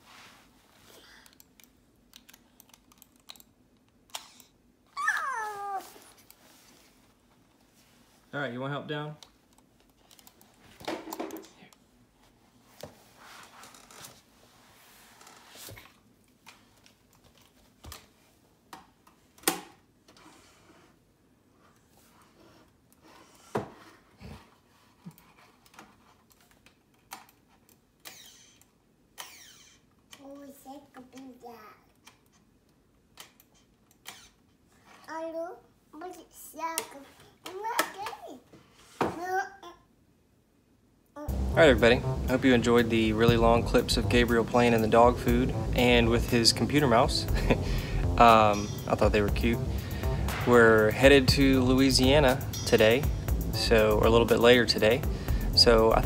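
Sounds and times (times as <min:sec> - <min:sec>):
high falling cry: 0:05.0 - 0:05.9.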